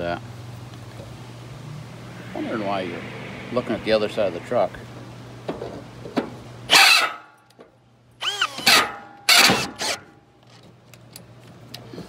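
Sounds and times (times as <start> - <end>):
cordless drill boring: 8.2 - 8.8.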